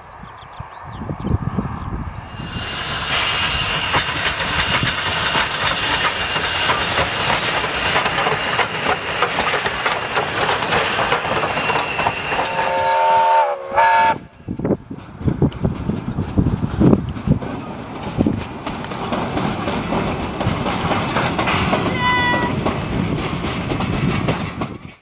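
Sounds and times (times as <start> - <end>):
steam train rolling past: 0.6 - 25.0
carriage wheels clattering on rails: 3.1 - 12.7, 14.9 - 25.0
steam locomotive whistle: 11.0 - 14.4.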